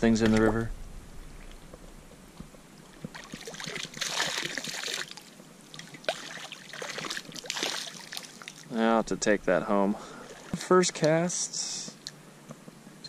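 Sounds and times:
water dripping: 1.2 - 8.8
river water splashing: 2.6 - 8.8, 10.0 - 10.8.

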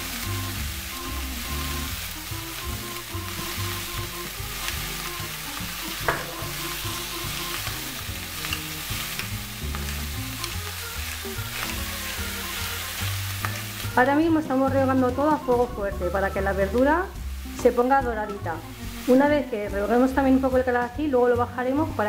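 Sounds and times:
vegetables sizzling in oil: 0.0 - 22.0.

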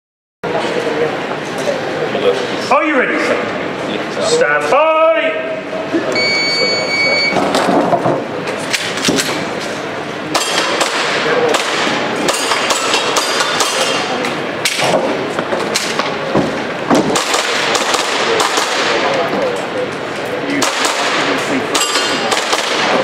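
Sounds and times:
shot timer beep: 6.2 - 7.4
airsoft pistol shots: 10.3 - 13.8, 17.0 - 19.0, 20.6 - 23.0.

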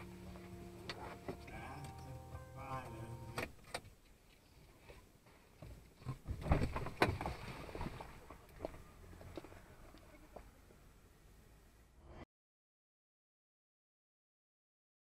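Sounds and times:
car engine idling: 0.0 - 3.6.

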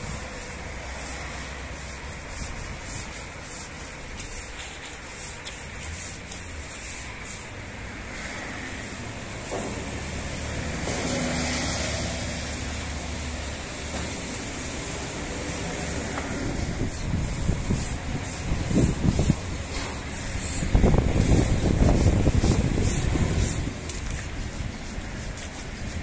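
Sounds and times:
brush scrubbing metal: 0.0 - 26.0
steady low rumble: 12.4 - 26.0.

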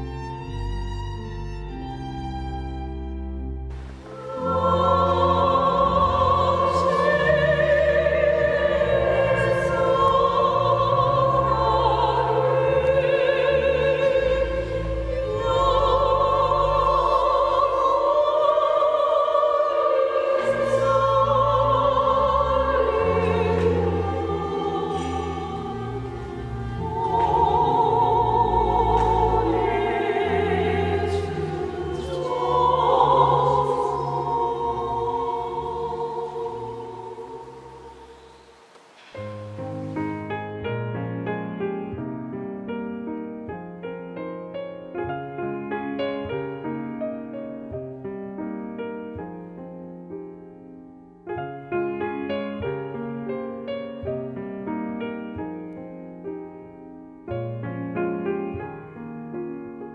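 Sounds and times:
women's choir singing hymn: 3.7 - 40.3.

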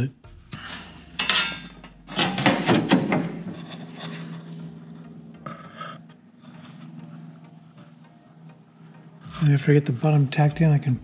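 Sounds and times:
metal scrape: 0.4 - 5.1
sheet metal rubbing and flexing: 0.4 - 5.9.

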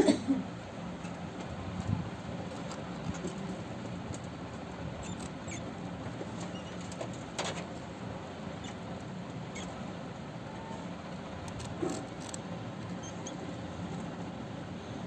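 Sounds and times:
rats scrabbling and rustling: 1.0 - 7.9
rats squeaking: 4.9 - 5.8, 6.4 - 7.2, 8.6 - 8.9, 9.5 - 9.8, 11.5 - 13.5.

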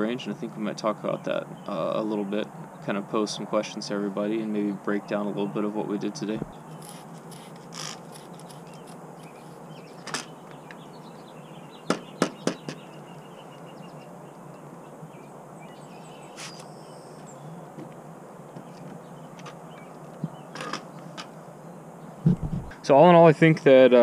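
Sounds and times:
faint bird chirps: 6.4 - 17.7.

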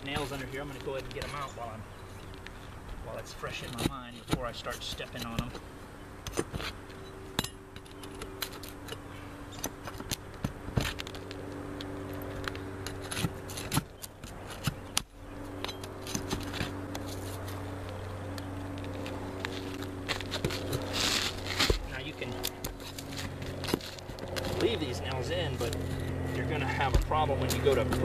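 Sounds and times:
pry bar scraping nails and shingles: 0.0 - 5.6, 12.4 - 17.6
steady low hum: 0.0 - 28.0.

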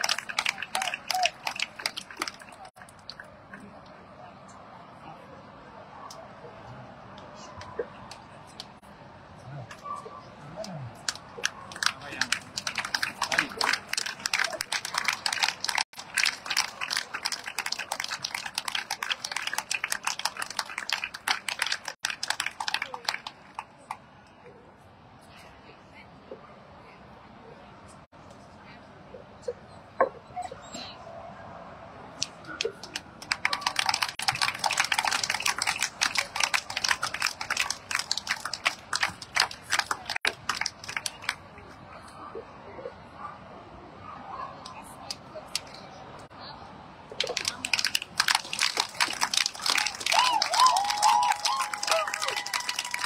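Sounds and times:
audience clapping: 0.0 - 3.3, 11.0 - 24.0, 32.2 - 41.4, 47.1 - 53.0.

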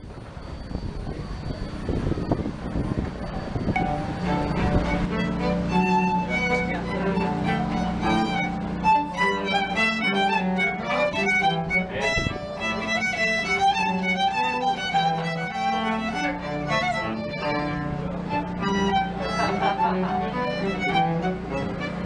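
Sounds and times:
low cello notes: 1.8 - 22.0
violin melody: 1.8 - 22.0.

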